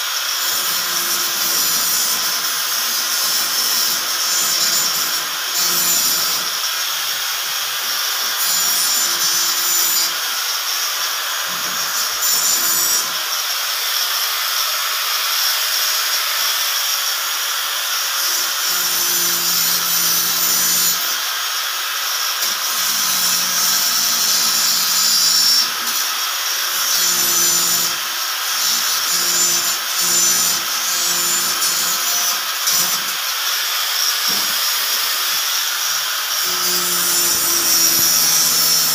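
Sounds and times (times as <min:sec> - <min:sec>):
drill motor hum: 0:28.6 - 0:38.9
hole saw cutting board: 0:34.0 - 0:38.9.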